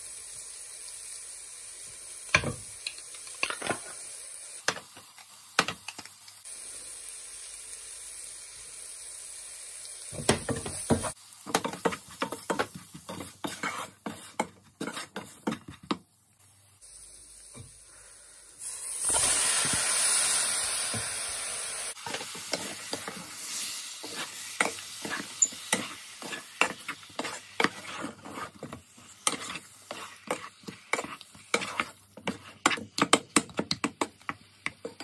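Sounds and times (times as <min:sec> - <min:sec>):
onions frying with faint sizzle: 0:00.0 - 0:35.0
wooden spoon scraping pan: 0:10.7 - 0:16.0, 0:22.0 - 0:33.2.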